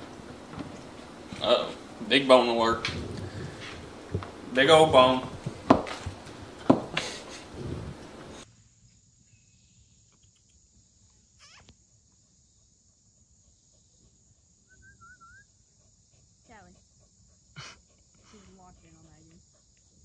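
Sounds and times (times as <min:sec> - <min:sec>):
bird calls: 0:00.0 - 0:08.4
insect chorus: 0:00.0 - 0:20.0
puppy playing with toy on floor: 0:00.1 - 0:08.4.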